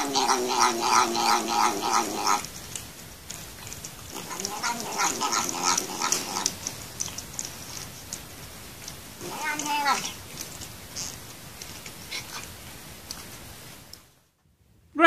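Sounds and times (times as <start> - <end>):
cat pulsing murmuring calls: 0.0 - 2.5, 4.1 - 6.7, 9.2 - 10.2
cat licking: 0.1 - 13.6.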